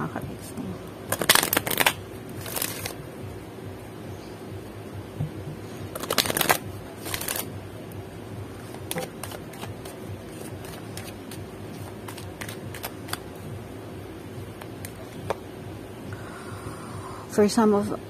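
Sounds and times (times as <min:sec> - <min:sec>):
cards riffle shuffled: 0:01.1 - 0:03.0, 0:05.9 - 0:07.5, 0:08.6 - 0:13.3
cards sliding and tapping: 0:05.9 - 0:07.5, 0:08.6 - 0:13.3.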